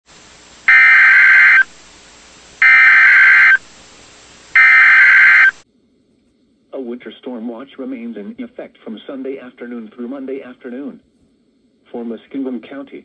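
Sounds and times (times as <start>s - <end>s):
steady hiss: 0.1s - 13.0s
warbling digital tone bursts: 0.7s - 1.7s, 2.6s - 3.6s, 4.6s - 5.6s.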